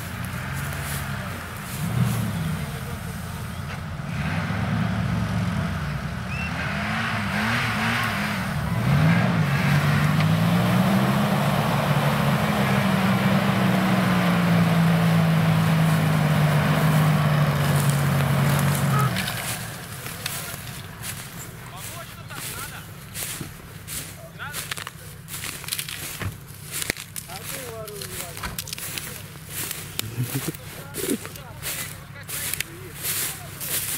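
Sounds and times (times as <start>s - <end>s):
off-road vehicle engine revving: 0.0s - 33.9s.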